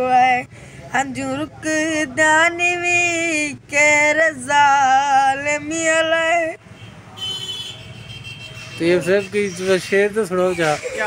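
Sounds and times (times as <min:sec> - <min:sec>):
boy singing unaccompanied: 0:00.0 - 0:06.6
short breaths: 0:00.5 - 0:01.0.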